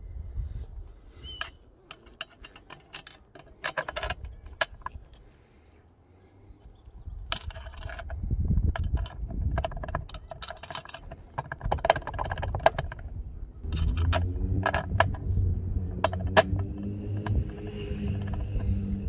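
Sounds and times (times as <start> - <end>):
metallic clicks of bolt and nut: 1.4 - 5.3, 7.2 - 19.0
low rumble: 12.8 - 19.0.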